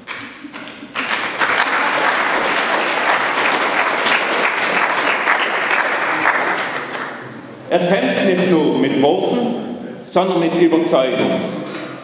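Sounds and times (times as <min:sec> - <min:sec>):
audience applauding: 0:00.0 - 0:07.3.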